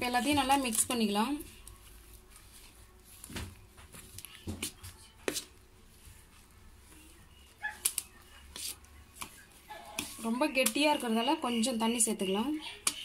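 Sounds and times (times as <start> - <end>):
spoon stirring thick batter: 0.0 - 11.2.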